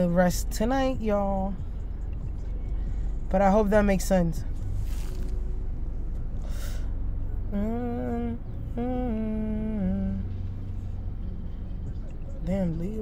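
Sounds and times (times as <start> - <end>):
low background hum: 0.0 - 13.0
woman humming: 7.4 - 10.5.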